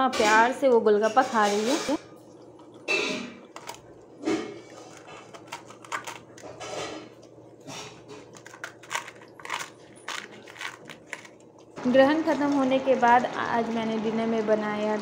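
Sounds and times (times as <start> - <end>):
dog chewing crunchy food: 2.4 - 11.8.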